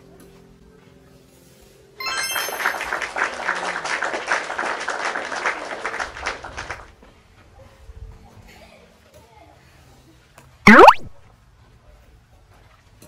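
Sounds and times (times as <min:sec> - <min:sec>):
bright chime: 0:02.0 - 0:03.2
applause: 0:02.0 - 0:07.0.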